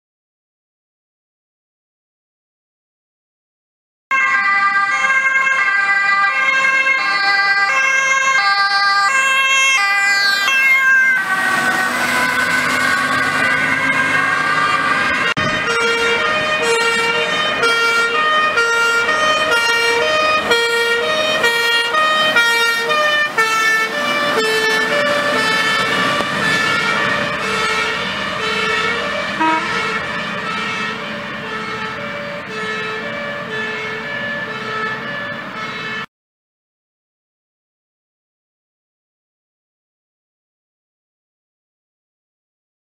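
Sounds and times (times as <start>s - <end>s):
fire engine two-tone siren: 4.1s - 36.1s
truck engine: 4.1s - 36.1s.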